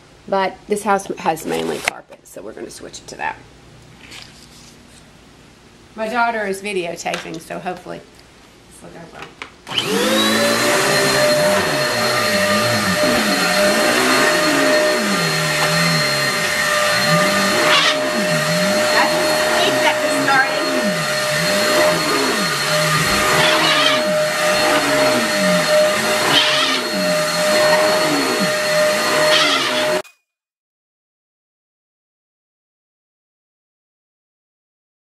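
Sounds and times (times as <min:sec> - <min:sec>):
vacuum cleaner high whine: 0:09.7 - 0:30.0
squeak rising and falling: 0:10.0 - 0:30.0.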